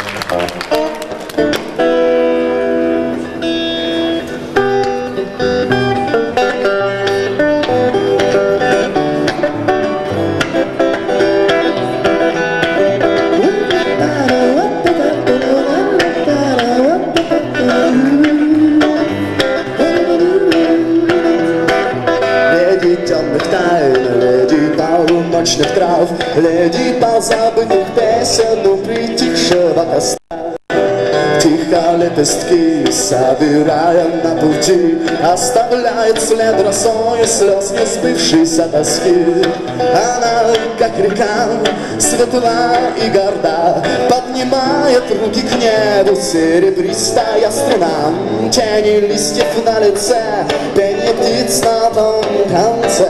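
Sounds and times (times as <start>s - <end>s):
bass guitar: 0.0s - 53.0s
electric guitar lead: 0.0s - 53.0s
drums: 0.3s - 3.3s.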